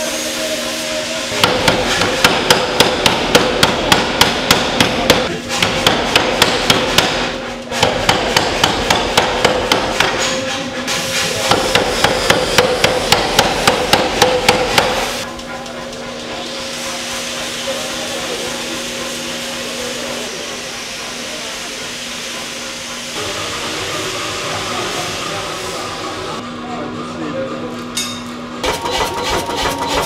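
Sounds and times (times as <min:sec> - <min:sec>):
power hammer blows on steel: 0:00.0 - 0:15.3.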